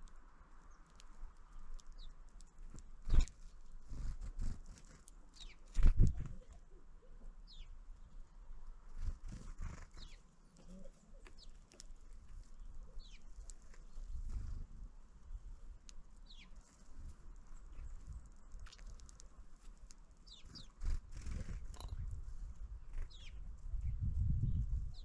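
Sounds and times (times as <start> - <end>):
birds pecking on wood: 0.0 - 6.3, 8.7 - 14.9, 15.8 - 22.2.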